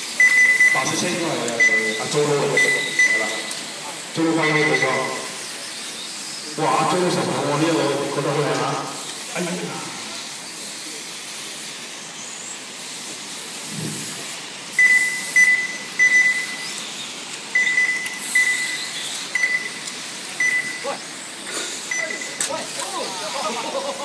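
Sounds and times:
rc cars hissing on track: 0:00.0 - 0:24.0
short high electronic beeps: 0:00.2 - 0:03.6, 0:04.2 - 0:05.4, 0:14.8 - 0:16.8, 0:17.5 - 0:19.8, 0:20.4 - 0:21.0, 0:21.9 - 0:22.4.

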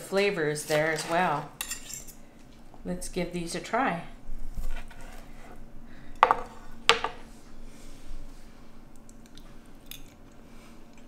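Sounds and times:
faint steady hum: 0:00.0 - 0:11.0
knife and fork scraping on board: 0:00.6 - 0:02.2, 0:04.6 - 0:05.6.

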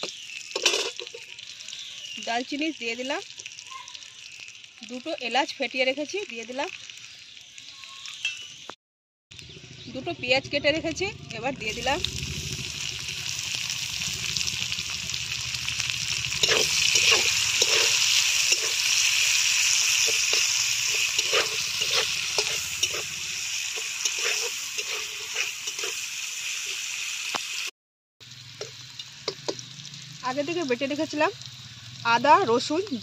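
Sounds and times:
onions sizzling in oil: 0:00.0 - 0:08.8, 0:09.4 - 0:33.0
metal spatula scraping a pan: 0:00.6 - 0:01.2, 0:16.3 - 0:26.8.

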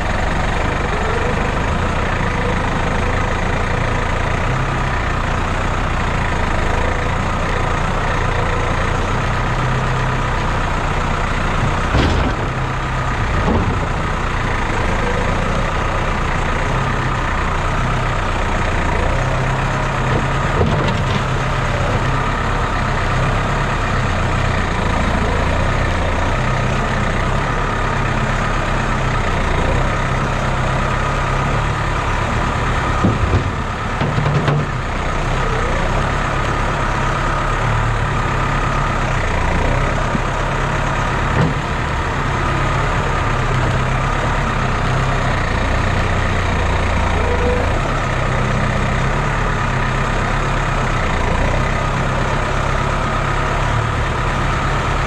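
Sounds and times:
tractor diesel engine running: 0:00.0 - 0:55.0
loader knocks: 0:11.3 - 0:15.6, 0:19.4 - 0:22.4, 0:31.4 - 0:37.2, 0:39.8 - 0:46.8.

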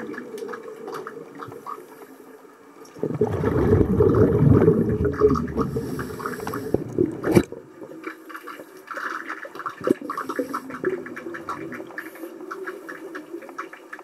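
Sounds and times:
air bubbling underwater: 0:03.0 - 0:07.6.

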